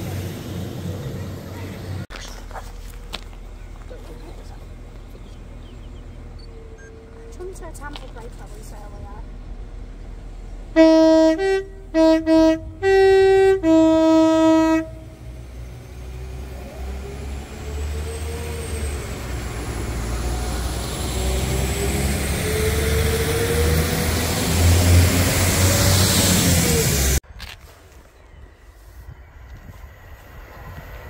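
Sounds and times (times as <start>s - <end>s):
train engine and wheel noise: 0.0s - 31.0s
locomotive two-tone horn blasts: 10.7s - 15.4s.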